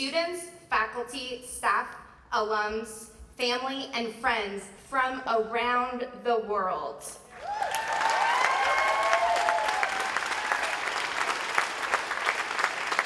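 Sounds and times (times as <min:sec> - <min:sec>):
voices cheering and whooping: 0:07.4 - 0:10.9
crowd applauding: 0:07.4 - 0:13.0.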